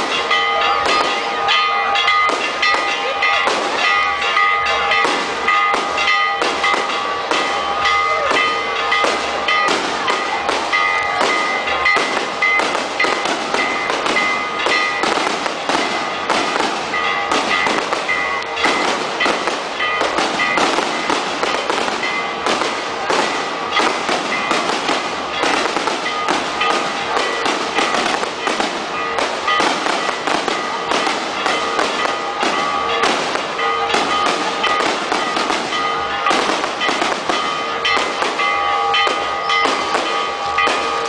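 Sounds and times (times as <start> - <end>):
firecracker bangs and crackling: 0.0 - 1.6, 2.2 - 4.0, 5.0 - 41.0.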